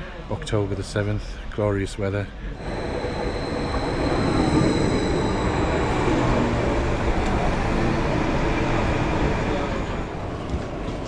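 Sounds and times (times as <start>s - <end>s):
thin high whine: 2.6s - 10.5s
train carriages rumbling: 2.6s - 11.0s.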